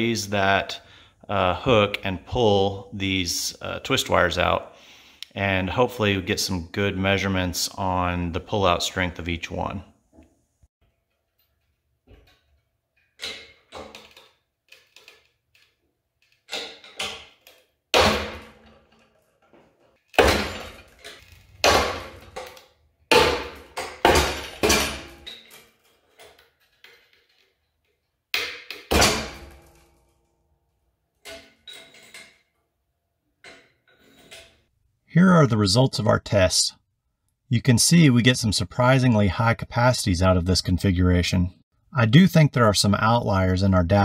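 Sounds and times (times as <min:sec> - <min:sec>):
hook and chain clanking: 0:31.2 - 0:32.6.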